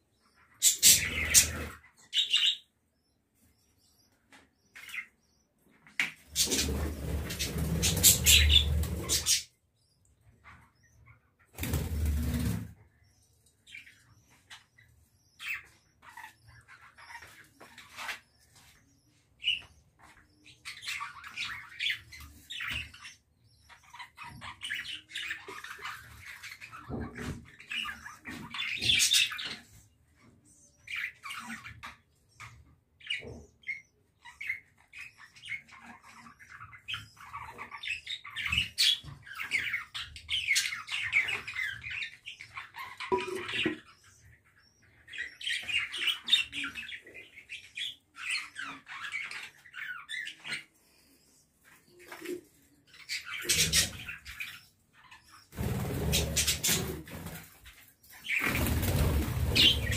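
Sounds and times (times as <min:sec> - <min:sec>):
budgerigars chattering: 0:00.6 - 0:02.6, 0:06.4 - 0:09.5, 0:53.0 - 0:54.6, 0:58.2 - 0:59.9.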